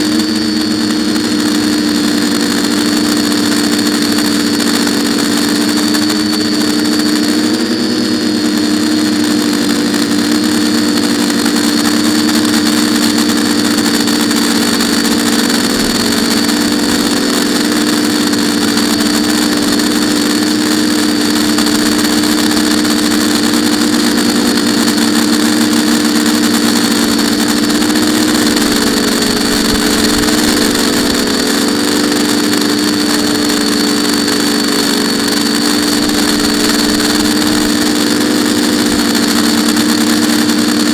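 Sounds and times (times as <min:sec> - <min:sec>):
drone motors buzzing: 0:00.0 - 0:40.9.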